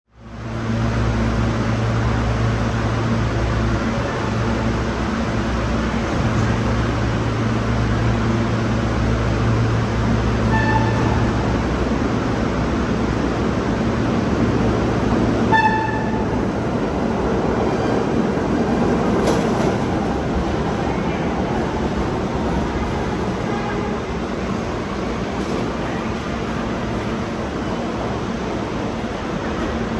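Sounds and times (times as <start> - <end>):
subway train rumbling: 0.1 - 29.9
train horn toots: 10.5 - 11.3, 15.5 - 16.4.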